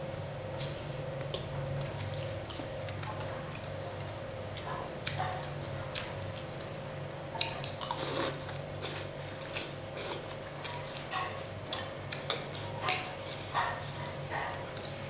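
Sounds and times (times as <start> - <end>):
steady low hum: 0.0 - 15.0
noodles being slurped: 7.9 - 10.3.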